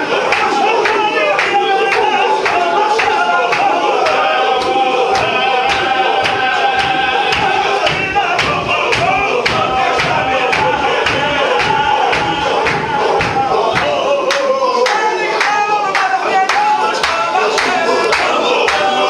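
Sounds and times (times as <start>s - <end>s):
men chanting in unison: 0.0s - 19.0s
stamping feet: 4.6s - 14.2s.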